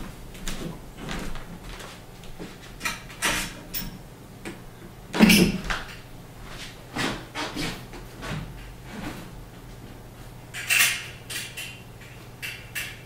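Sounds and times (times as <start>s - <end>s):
footsteps: 0.0s - 2.8s, 5.6s - 10.4s.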